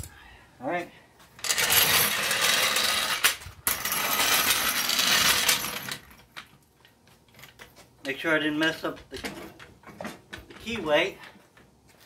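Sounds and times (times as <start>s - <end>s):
floor jack wheels rattling on concrete: 1.4s - 6.4s.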